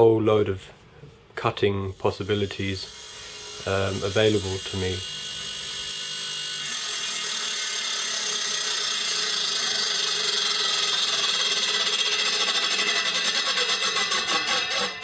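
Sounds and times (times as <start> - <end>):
table saw motor running: 2.0 - 15.0.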